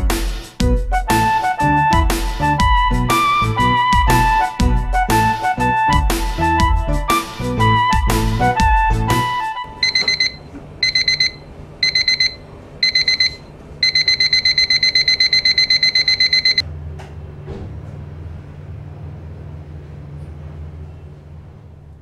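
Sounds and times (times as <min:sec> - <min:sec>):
background music: 0:00.0 - 0:09.8
alarm clock beeping: 0:09.8 - 0:16.6.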